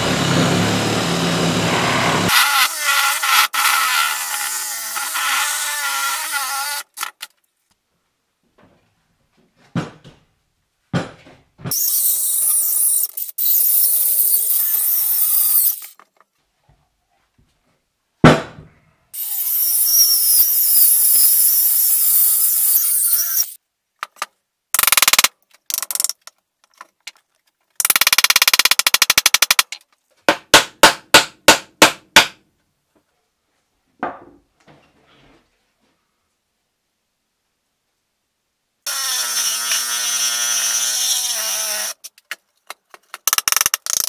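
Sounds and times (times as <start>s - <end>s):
circular saw cutting log: 0.0s - 7.0s, 38.9s - 42.0s
thump: 9.6s - 10.2s, 10.9s - 11.7s, 18.2s - 18.8s.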